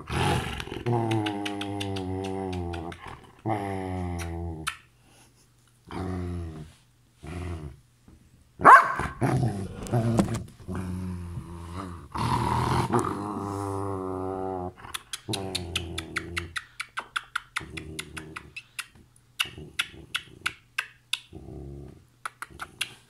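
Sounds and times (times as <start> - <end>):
dog grumbling and growling: 0.0 - 4.7, 5.9 - 7.8, 9.1 - 16.6, 17.6 - 18.6, 21.3 - 22.0.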